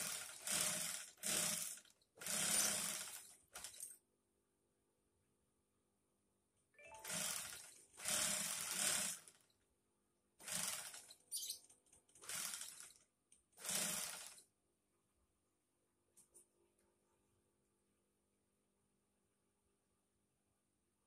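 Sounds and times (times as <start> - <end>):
sewing machine stitching: 0.0 - 3.9, 6.9 - 9.5, 10.4 - 13.0, 13.6 - 14.5.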